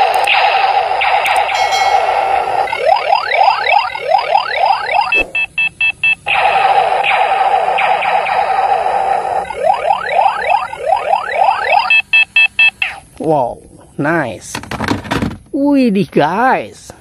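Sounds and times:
toy gun laser zaps: 0.0s - 5.4s, 6.2s - 11.8s
warbling electronic tone: 1.3s - 5.4s
short electronic beeps: 1.5s - 2.4s.

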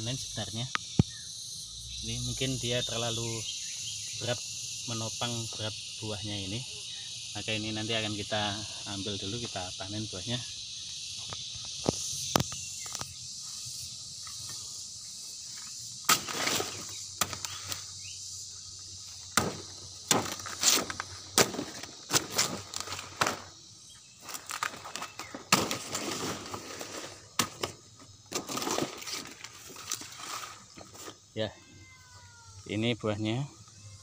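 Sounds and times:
insects chirring: 0.0s - 34.0s
leaves rustling and crackling: 15.4s - 17.9s, 19.1s - 23.6s, 24.2s - 31.2s
machete chopping plant stalk: 16.1s - 17.6s, 19.4s - 22.6s, 25.5s - 26.1s.

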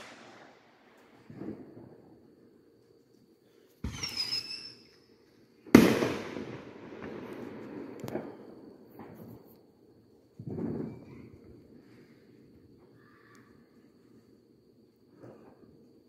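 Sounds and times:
small firework cracks: 0.0s - 1.8s, 5.7s - 9.4s
firework pop with whistle: 3.8s - 4.8s.

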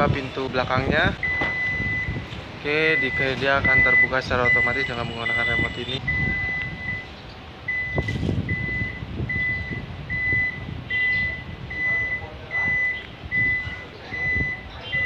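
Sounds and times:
warning buzzer beeping: 1.2s - 7.1s, 7.7s - 15.0s.

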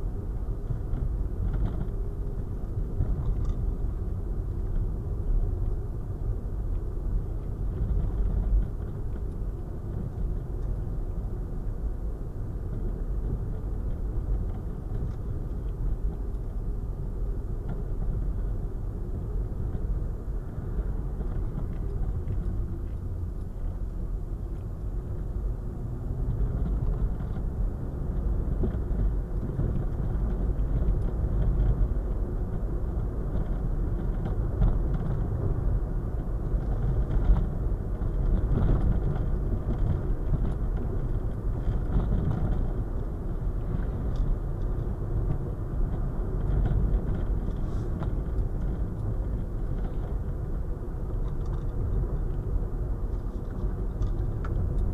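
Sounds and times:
car road noise from cabin: 0.0s - 54.9s.

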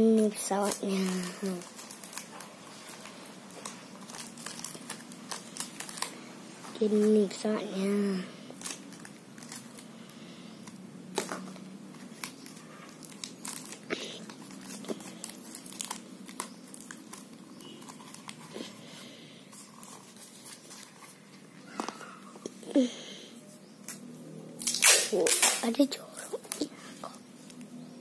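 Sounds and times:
cardboard rustling and scraping: 19.5s - 22.0s.

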